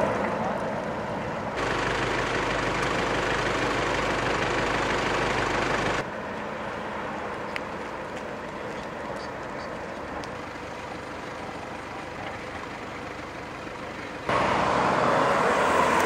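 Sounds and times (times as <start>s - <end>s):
faint low engine hum: 0.0s - 16.0s
road traffic noise: 0.0s - 16.0s.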